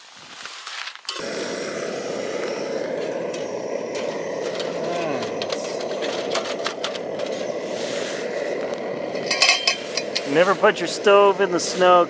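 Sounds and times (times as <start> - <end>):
camping stove flame rushing: 0.0 - 12.0
metal pot clinking: 9.1 - 10.4.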